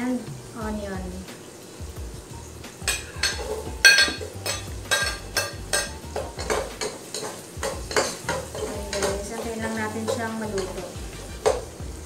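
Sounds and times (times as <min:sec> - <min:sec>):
stirring in a pot: 0:01.6 - 0:12.0
metal spoon clinking on ceramic: 0:02.9 - 0:10.8.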